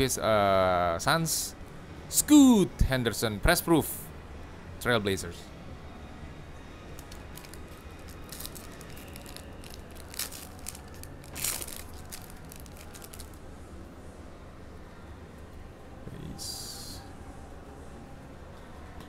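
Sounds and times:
cards being handled: 7.0s - 13.4s
pack wrapper crinkling and tearing: 7.0s - 13.4s.

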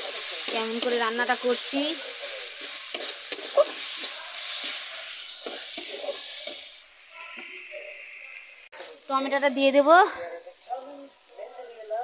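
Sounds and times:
spatula scraping a pan: 0.0s - 6.8s
vegetables sizzling in hot oil: 0.0s - 12.0s.

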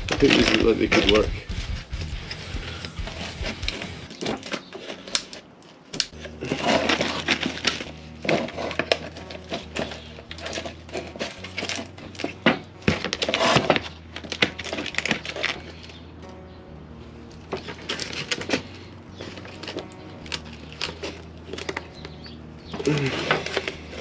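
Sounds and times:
plastic mould cracking and snapping: 4.1s - 16.0s, 17.5s - 24.0s.

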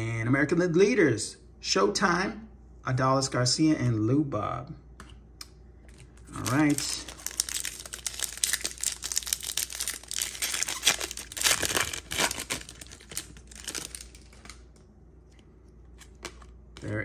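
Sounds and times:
light handling of cards: 5.8s - 17.0s
card pack wrapper tearing and crinkling: 6.0s - 14.7s.

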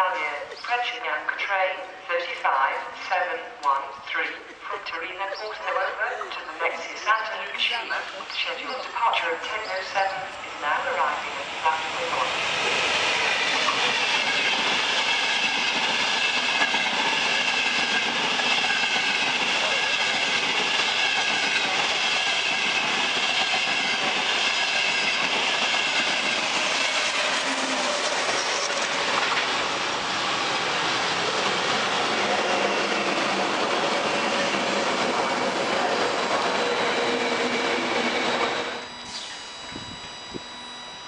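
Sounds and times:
train rolling past: 7.5s - 38.9s
train wheels rushing on rail: 7.9s - 38.9s.

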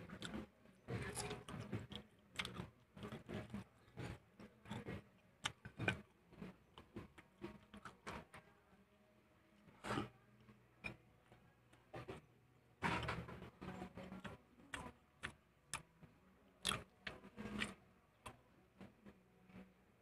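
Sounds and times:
person chewing fried chicken: 1.0s - 4.0s.

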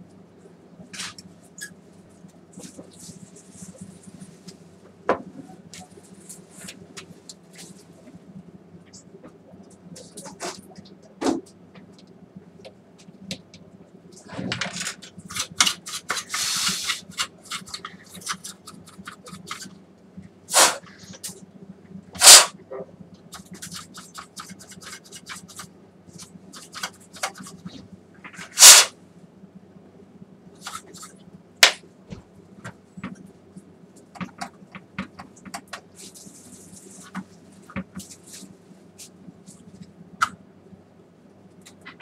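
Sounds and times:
loud hissing bursts: 20.5s - 20.9s, 22.2s - 22.5s, 28.5s - 28.9s.

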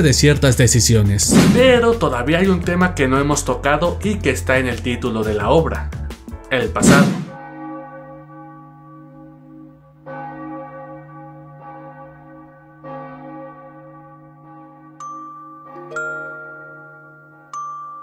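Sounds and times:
large church bell tolling: 7.4s - 17.5s.

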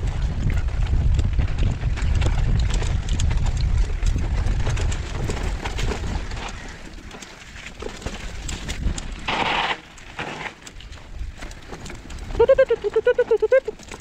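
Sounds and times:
wind rushing over microphone: 0.0s - 6.9s
bike clicking and rattling: 0.0s - 14.0s
tyres rolling over dirt and leaves: 4.1s - 14.0s.

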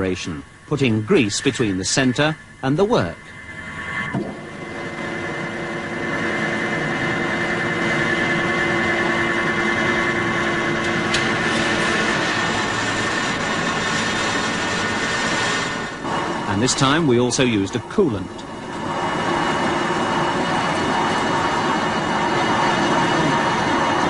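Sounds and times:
metal lathe cutting with whine: 0.0s - 24.0s.

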